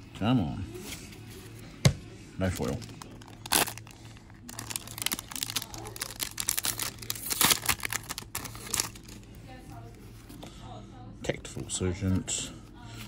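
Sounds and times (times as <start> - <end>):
wrapper tearing and crinkling: 2.6 - 9.2.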